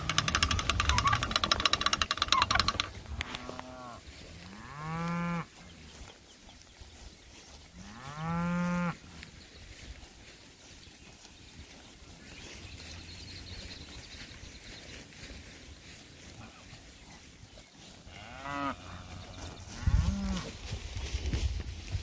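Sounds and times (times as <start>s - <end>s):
cattle mooing: 2.4s - 5.5s, 18.1s - 20.5s.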